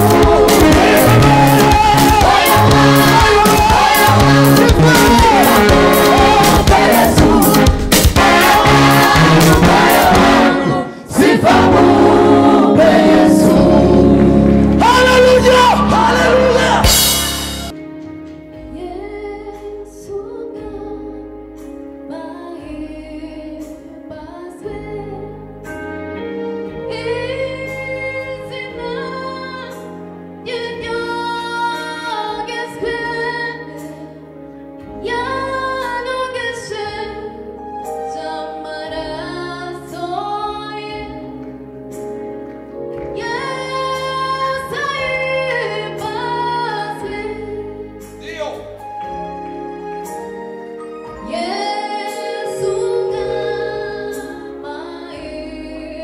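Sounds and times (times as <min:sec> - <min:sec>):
instrumental backing with bass: 0:00.0 - 0:56.0
woman singing: 0:22.1 - 0:25.4, 0:30.4 - 0:34.1, 0:35.0 - 0:41.4, 0:43.2 - 0:47.8, 0:51.2 - 0:56.0.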